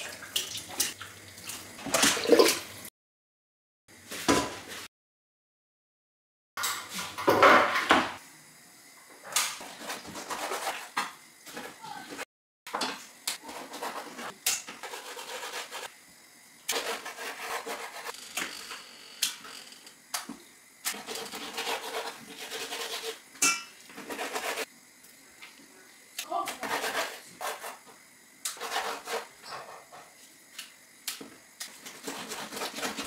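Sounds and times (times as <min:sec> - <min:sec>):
knife scraping: 0:09.6 - 0:10.9, 0:13.4 - 0:15.9, 0:16.7 - 0:18.2, 0:20.9 - 0:24.7, 0:26.4 - 0:27.8, 0:28.5 - 0:30.0, 0:31.6 - 0:33.0.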